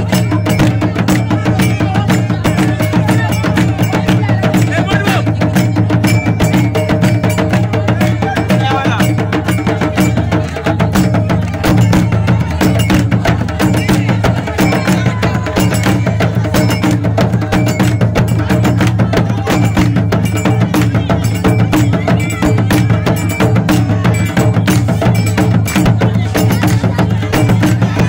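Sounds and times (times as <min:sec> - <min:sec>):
rapid drum strokes: 0:00.0 - 0:28.0
voices: 0:00.0 - 0:28.0.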